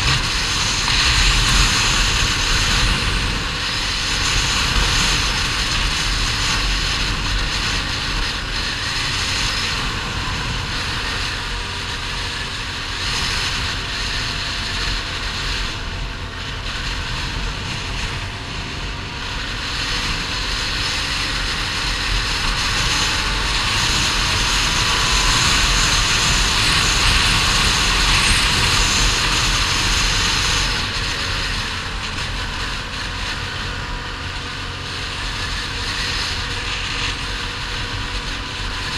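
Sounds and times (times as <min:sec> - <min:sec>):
atv engine running: 0:00.0 - 0:38.9
wind rushing over microphone: 0:00.0 - 0:38.9.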